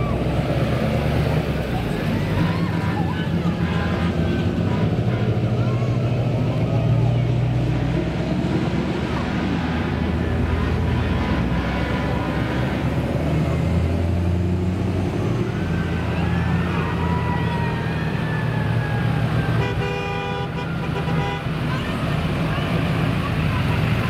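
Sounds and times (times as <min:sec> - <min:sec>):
cars and trucks driving past: 0:00.0 - 0:24.0
faint siren wailing: 0:01.5 - 0:07.4, 0:15.0 - 0:19.8.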